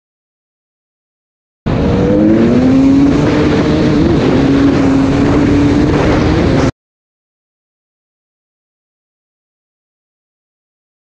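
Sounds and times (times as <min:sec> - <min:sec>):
dirt bike engine revving high: 0:01.7 - 0:06.7.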